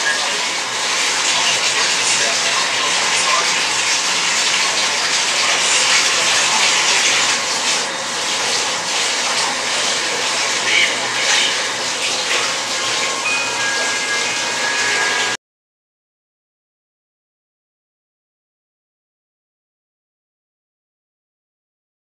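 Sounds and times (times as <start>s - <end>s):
tap water running: 0.0s - 15.4s.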